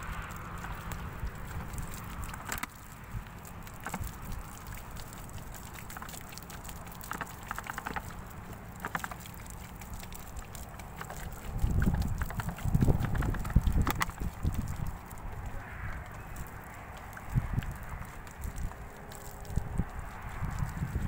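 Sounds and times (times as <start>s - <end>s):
clicks and crackles: 0.0s - 20.9s
water pouring onto sandy soil: 0.0s - 21.0s
wind rumbling on microphone: 0.0s - 21.0s.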